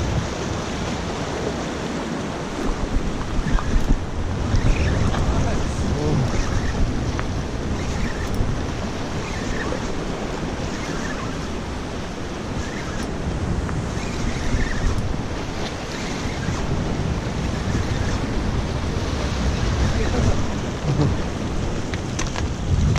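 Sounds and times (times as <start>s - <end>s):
wind buffeting microphone: 0.0s - 22.9s.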